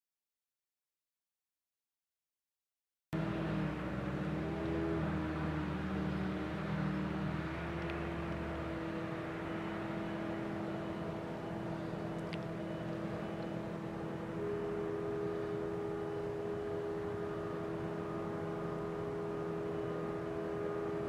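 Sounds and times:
higher tone: 3.2s - 21.0s
tractor engine droning: 3.2s - 21.0s.

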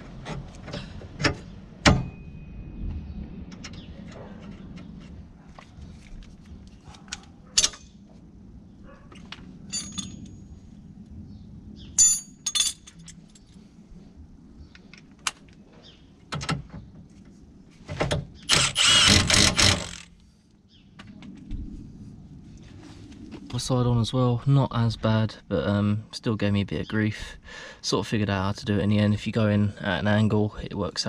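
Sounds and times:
metal tools clinking: 9.7s - 10.6s, 12.0s - 13.6s
impact wrench running: 18.5s - 20.1s.

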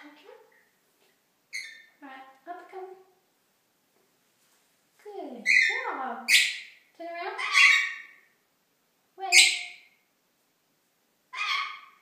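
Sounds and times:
parrot squawking: 1.5s - 2.0s, 5.4s - 6.8s, 7.4s - 8.3s, 9.3s - 10.0s, 11.3s - 12.0s.

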